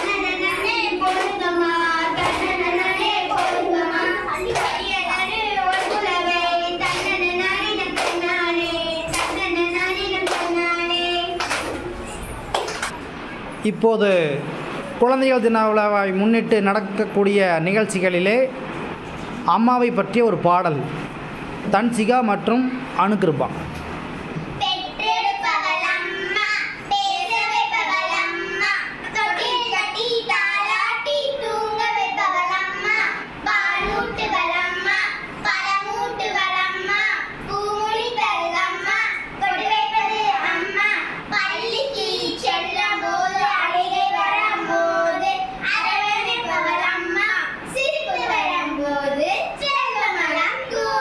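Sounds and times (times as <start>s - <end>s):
girls singing together: 0.0s - 13.0s, 24.5s - 51.0s.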